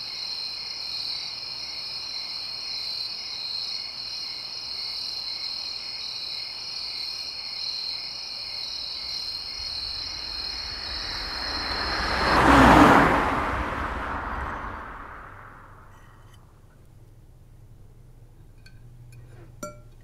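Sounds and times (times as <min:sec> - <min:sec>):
high-pitched insect chorus: 0:00.0 - 0:15.6
rushing swell: 0:09.2 - 0:16.2.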